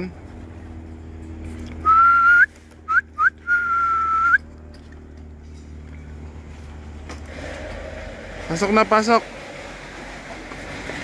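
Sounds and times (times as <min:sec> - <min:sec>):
man whistling: 0:01.8 - 0:04.4.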